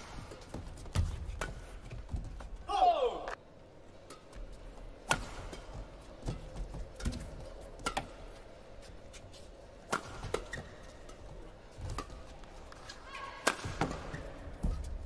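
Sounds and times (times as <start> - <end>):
rackets striking a shuttlecock: 4.0 - 8.3, 9.8 - 11.3.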